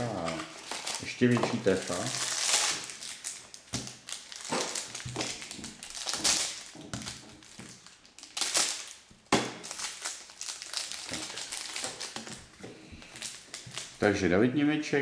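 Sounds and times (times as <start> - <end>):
wrapper crinkling: 0.0 - 14.2.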